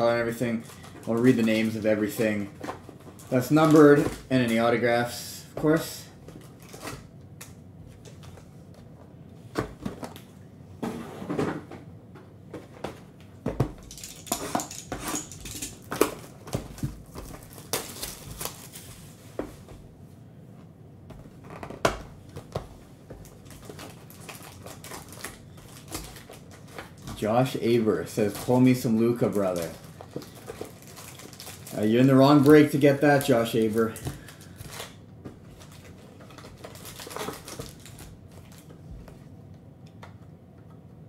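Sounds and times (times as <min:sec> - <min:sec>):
foil packs rustling and crinkling: 0:00.0 - 0:07.0, 0:14.7 - 0:19.2, 0:23.1 - 0:38.8.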